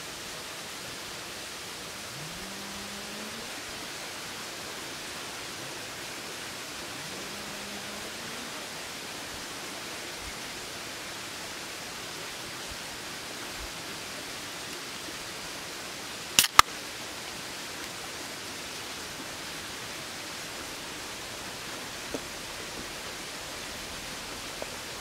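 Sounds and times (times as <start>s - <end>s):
steady background hiss: 0.0s - 25.0s
drink can ring-pull cracks: 16.4s - 16.7s.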